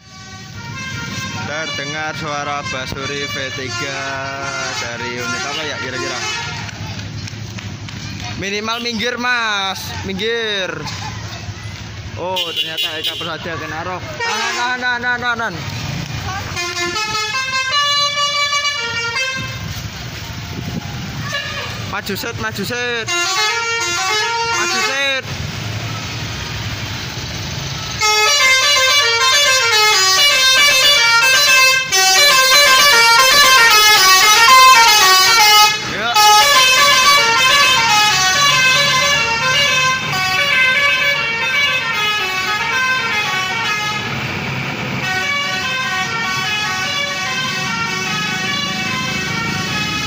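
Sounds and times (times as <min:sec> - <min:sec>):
multi-tone bus horn melody: 0:00.0 - 0:06.8, 0:12.3 - 0:15.1, 0:16.3 - 0:19.8, 0:21.1 - 0:21.9, 0:22.8 - 0:25.3, 0:27.7 - 0:44.3, 0:44.9 - 0:50.0.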